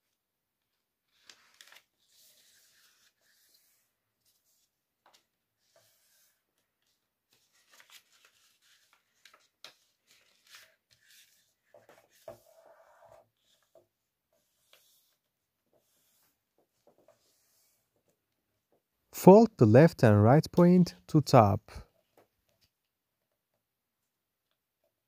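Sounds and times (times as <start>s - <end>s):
paper rustling and creasing: 1.0s - 18.2s.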